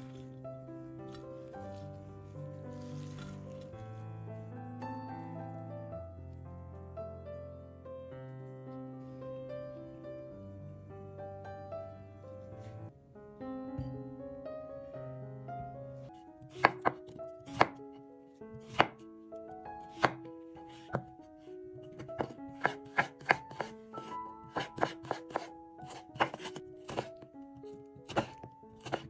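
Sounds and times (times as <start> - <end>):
soft background music: 0.0 - 29.0
knife chopping on cutting board: 16.5 - 17.8, 18.6 - 19.0, 19.9 - 21.1, 21.9 - 27.3, 28.0 - 29.0.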